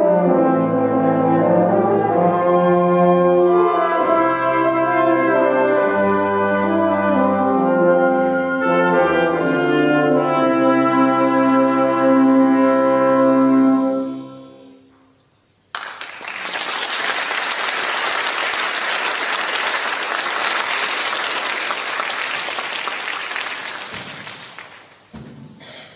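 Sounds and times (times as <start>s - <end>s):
audience applauding: 15.7s - 25.1s.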